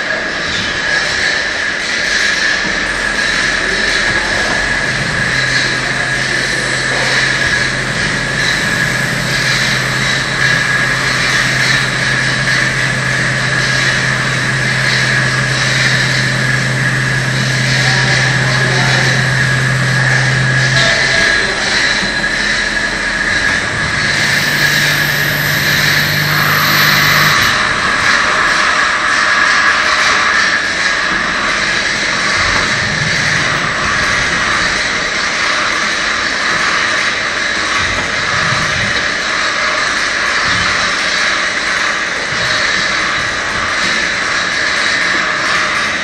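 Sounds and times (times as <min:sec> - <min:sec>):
lathe low hum: 0:02.6 - 0:28.0
lathe spindle whining: 0:02.7 - 0:27.9.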